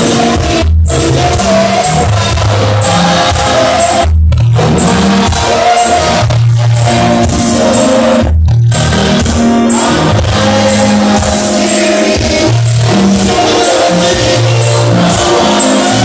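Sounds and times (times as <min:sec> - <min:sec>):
bass line: 0:00.0 - 0:16.0
people singing: 0:00.0 - 0:16.0
worship music through a pa: 0:00.0 - 0:16.0.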